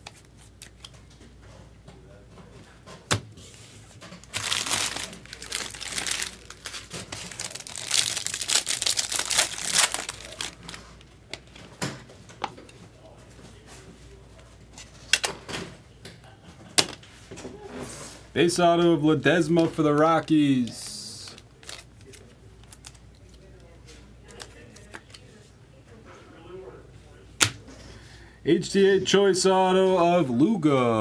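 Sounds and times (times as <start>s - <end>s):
foil wrapper crinkling and tearing: 4.2s - 10.9s, 20.8s - 23.0s.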